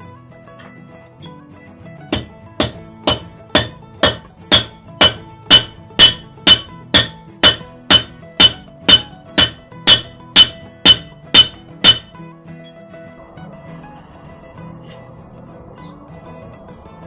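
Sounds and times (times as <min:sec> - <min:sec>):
hammer striking hot iron: 0:02.1 - 0:12.2.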